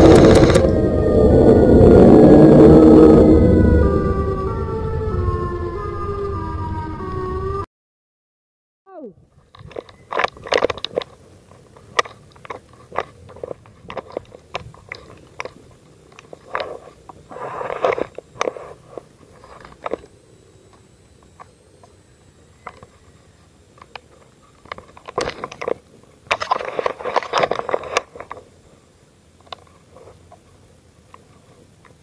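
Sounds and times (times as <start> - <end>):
sharp clicks and knocks: 9.4 - 20.1.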